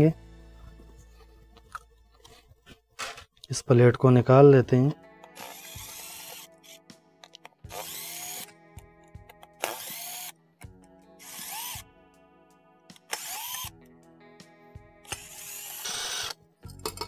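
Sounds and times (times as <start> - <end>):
power screwdriver motor whine: 5.4 - 6.8, 7.7 - 8.5, 9.6 - 10.4, 11.2 - 11.9, 13.0 - 13.7, 15.0 - 16.4.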